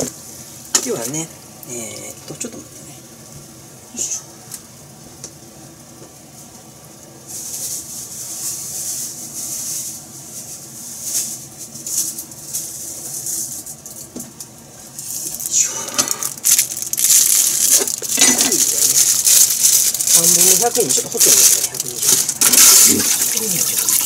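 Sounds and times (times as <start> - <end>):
crinkly rustling: 7.2 - 14.0, 16.2 - 24.0.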